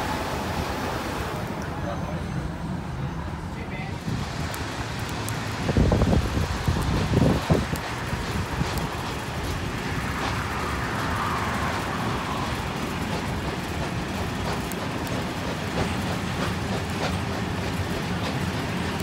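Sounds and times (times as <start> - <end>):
train carriage rumble and rattle: 0.0 - 19.0
faint clicks of train wheels: 4.0 - 19.0.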